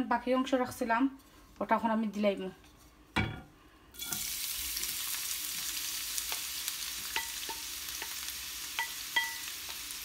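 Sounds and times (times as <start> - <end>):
onion sizzling in oil: 3.9 - 10.0.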